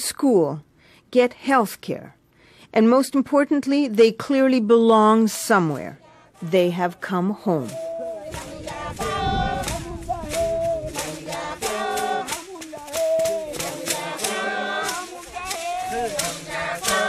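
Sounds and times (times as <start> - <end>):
group singing call-and-response: 5.2 - 17.0
sharp hand claps: 7.6 - 17.0.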